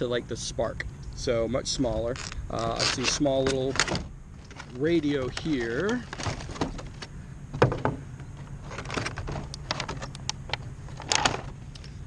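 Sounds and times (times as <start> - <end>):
low steady hum: 0.0 - 12.0
plastic packaging clicks and crackles: 2.2 - 6.9.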